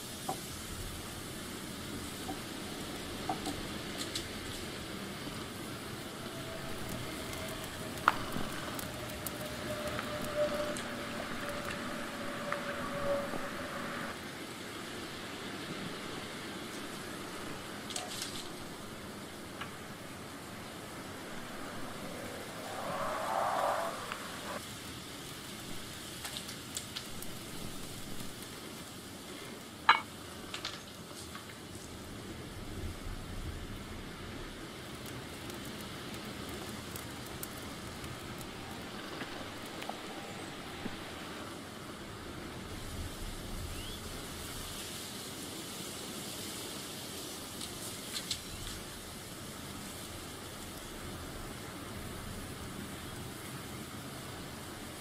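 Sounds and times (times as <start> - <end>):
steady hiss: 0.0 - 55.0
wood fire crackling: 0.0 - 55.0.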